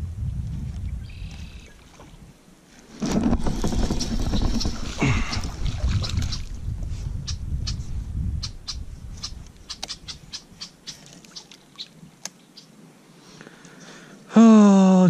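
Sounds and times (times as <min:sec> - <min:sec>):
wind rumbling on microphone: 0:00.0 - 0:10.8.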